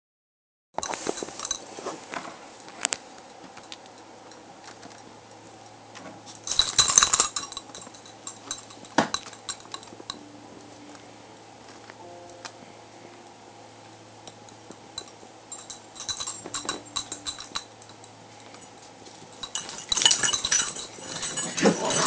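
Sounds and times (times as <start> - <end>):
small hard objects clinking: 0.8 - 1.9, 6.3 - 10.2, 14.3 - 22.0
faint low hum: 0.8 - 22.0.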